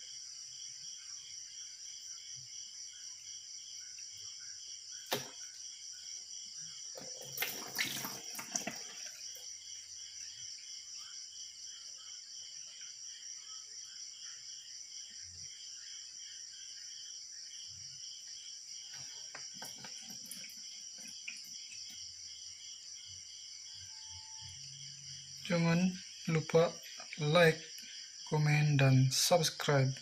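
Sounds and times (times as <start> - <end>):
crickets chirping: 0.0 - 30.0
water splashing in a basin: 5.1 - 5.6, 6.9 - 9.6, 19.0 - 22.0.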